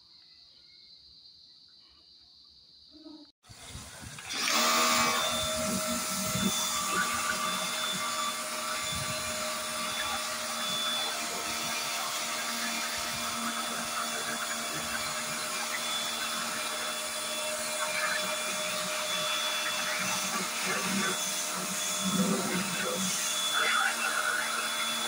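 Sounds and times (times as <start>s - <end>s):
pump motor humming: 3.5s - 25.0s
water jet hissing on metal: 5.3s - 25.0s.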